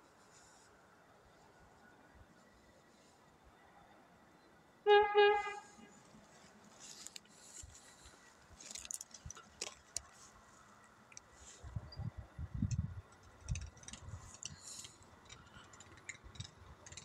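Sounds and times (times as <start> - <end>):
railcar horn blasts: 4.9 - 5.9
faint rustles and clicks: 5.6 - 11.9, 12.5 - 17.0.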